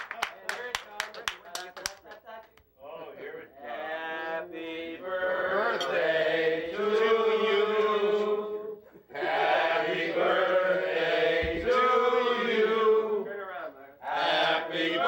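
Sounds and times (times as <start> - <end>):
voices singing slow tune: 3.1 - 15.0.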